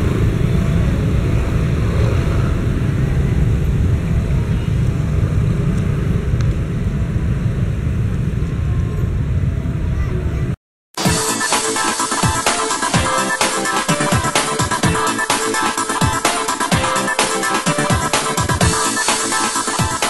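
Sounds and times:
low engine rumble: 0.0 - 10.6.

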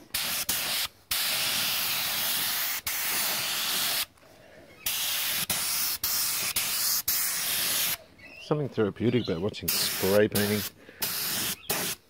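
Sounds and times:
spray paint hissing: 0.0 - 4.1, 4.8 - 8.0, 9.7 - 12.0.

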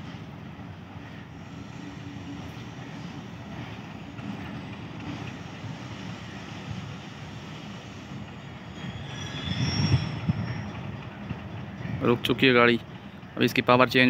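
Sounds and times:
brake squeal: 8.4 - 10.9.

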